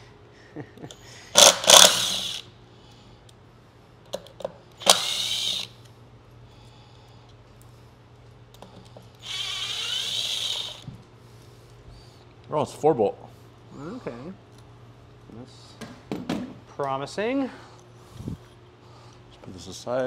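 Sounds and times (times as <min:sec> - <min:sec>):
power drill motor whine: 0:01.4 - 0:02.5, 0:04.8 - 0:05.8, 0:09.2 - 0:10.9.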